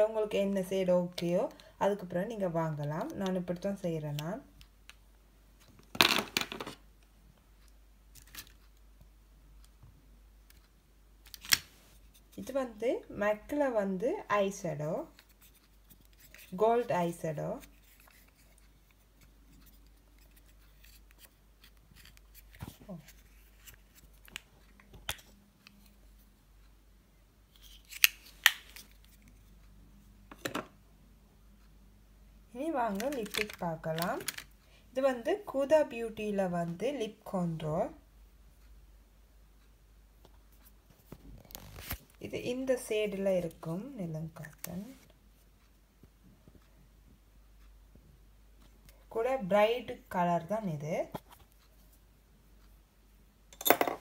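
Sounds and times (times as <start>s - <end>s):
plastic cosmetics clattering: 5.9s - 6.8s, 32.9s - 34.6s.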